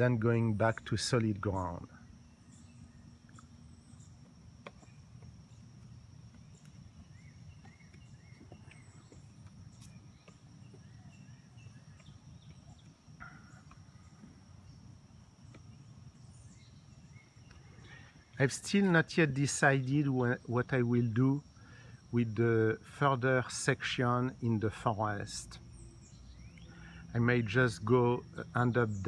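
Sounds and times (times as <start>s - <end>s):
faint bird chirps: 0.0s - 18.7s, 25.0s - 29.0s.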